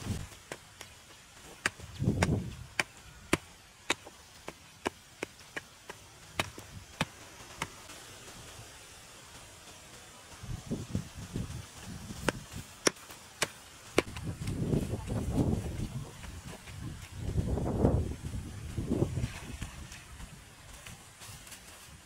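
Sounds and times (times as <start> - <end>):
pick striking hard soil: 0.1 - 7.9, 12.1 - 14.7.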